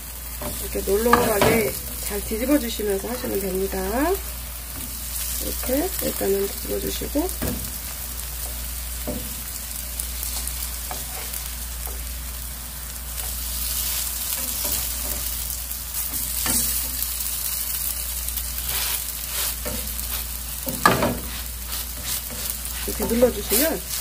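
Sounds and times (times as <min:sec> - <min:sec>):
pancakes sizzling in oil: 0:00.0 - 0:24.0
spatula clicking and scraping pan: 0:00.3 - 0:03.4, 0:10.2 - 0:12.1, 0:13.2 - 0:17.2, 0:18.3 - 0:24.0.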